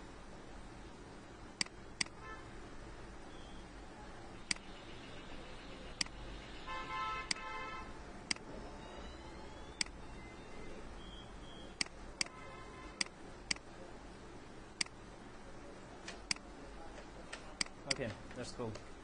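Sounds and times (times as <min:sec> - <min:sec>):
low background hiss: 0:00.0 - 0:19.0
computer mouse clicking: 0:08.3 - 0:08.5, 0:14.8 - 0:15.0.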